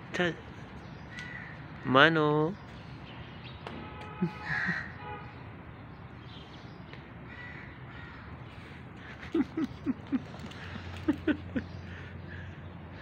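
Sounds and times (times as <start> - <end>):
crow cawing: 1.1 - 1.9, 4.2 - 5.2, 7.3 - 8.8.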